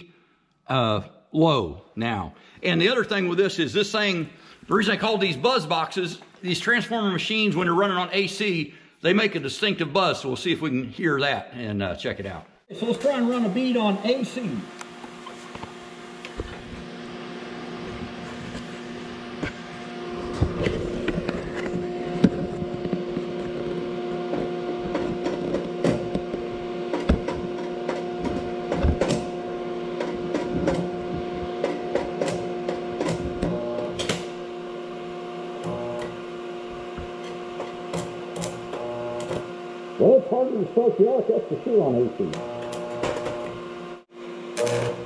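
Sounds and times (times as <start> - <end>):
arc welder humming: 12.8 - 40.5, 42.0 - 45.0.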